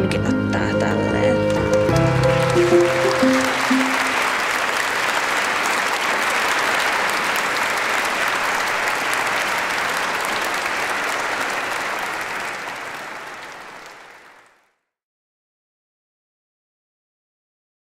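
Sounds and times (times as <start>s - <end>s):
large audience applauding: 1.5s - 14.8s.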